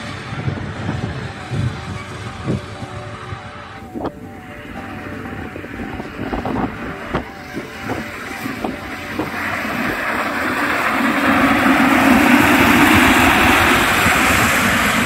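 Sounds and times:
inflatable tubes scraping down slide: 3.9s - 15.0s.

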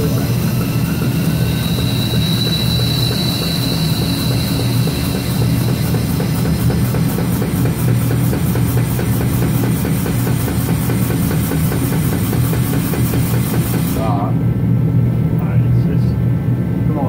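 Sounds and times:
high whine: 0.0s - 10.9s
pit jack running with even pulse: 0.0s - 17.0s.

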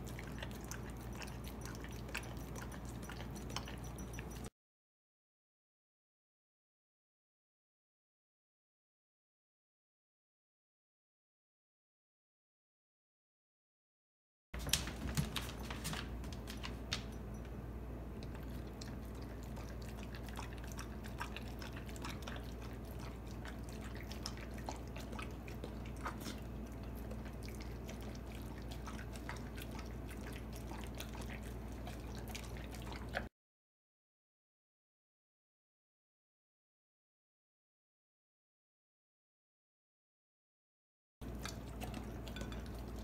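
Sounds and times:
dog eating wet smacking: 0.0s - 4.5s, 14.6s - 33.3s, 41.2s - 43.0s.

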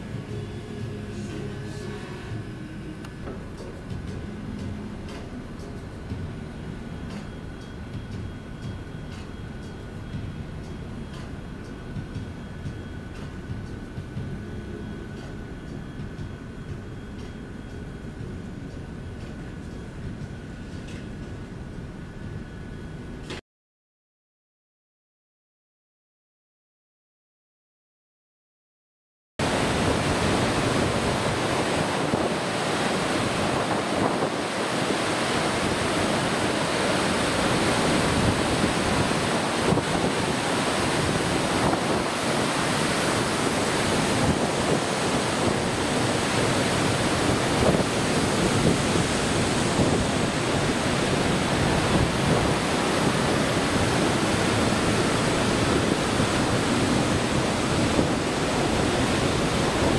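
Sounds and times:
sea waves: 0.0s - 18.2s, 29.4s - 59.9s
wind buffeting microphone: 29.4s - 59.9s
wind rushing: 29.4s - 59.9s.

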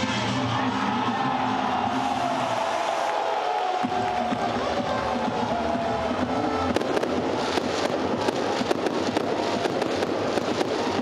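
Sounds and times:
fireworks crackling: 1.8s - 11.0s.

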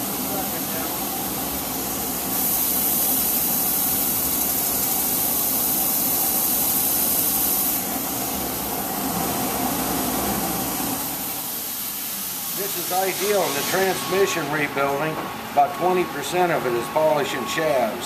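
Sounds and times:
belt polisher hissing: 0.0s - 8.3s, 10.9s - 14.6s.

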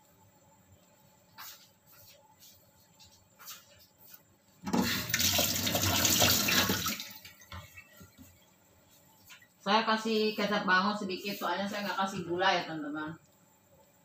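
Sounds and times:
water running from a tap: 4.7s - 7.4s.

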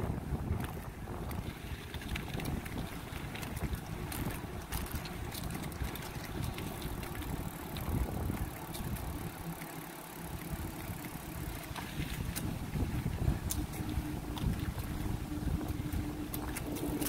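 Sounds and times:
bicycle tyre rumble on concrete: 0.0s - 17.0s
wind buffeting microphone: 0.0s - 17.0s
bicycle clicks: 0.4s - 12.6s, 15.5s - 17.0s.

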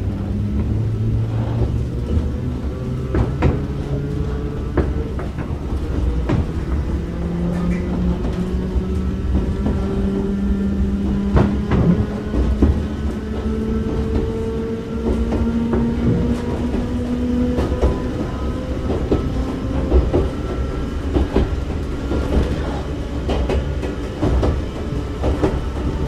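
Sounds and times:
rail joint clicks: 0.0s - 26.0s
train wheel rumble: 0.0s - 26.0s.

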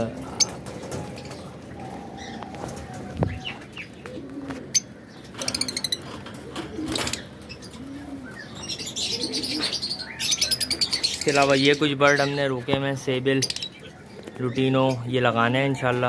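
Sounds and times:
lovebirds chirping: 0.0s - 16.0s
low cooing calls: 0.3s - 11.1s.

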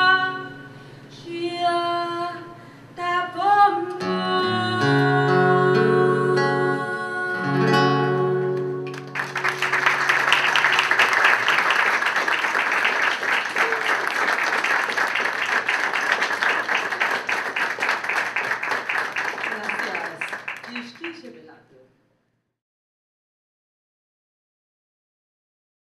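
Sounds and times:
acoustic guitar chords: 3.2s - 11.0s
audience applause: 8.8s - 21.4s.

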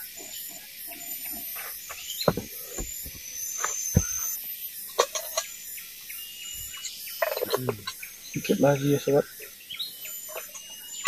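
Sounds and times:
forest insects droning: 0.0s - 11.0s
kettle and firewood knocks: 2.2s - 3.2s, 3.9s - 4.2s.

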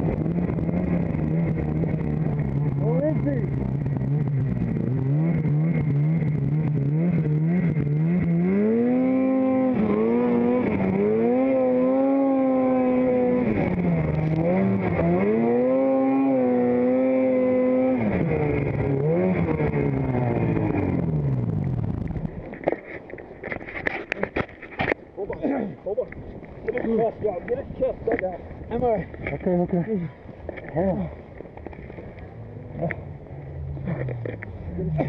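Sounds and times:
snowmobile engine revving: 0.0s - 22.3s, 32.3s - 35.0s.

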